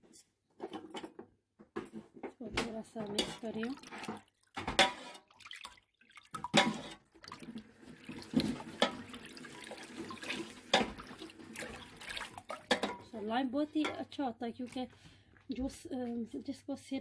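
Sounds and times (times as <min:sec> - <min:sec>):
liquid sloshing in metal pot: 0:01.9 - 0:15.4
ladle knocking metal pot: 0:02.5 - 0:05.2, 0:06.4 - 0:07.0, 0:08.4 - 0:09.1, 0:10.7 - 0:11.1, 0:12.5 - 0:13.2, 0:13.8 - 0:14.1.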